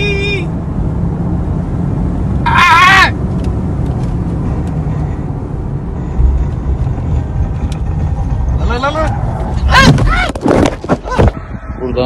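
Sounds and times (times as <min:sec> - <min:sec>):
car interior rumble at speed: 0:00.0 - 0:12.0
high wavering human cry: 0:02.4 - 0:03.2.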